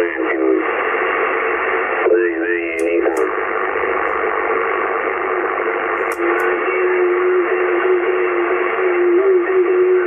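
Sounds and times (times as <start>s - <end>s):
radio static hiss: 0.0s - 10.0s
short clicks: 2.8s - 3.4s.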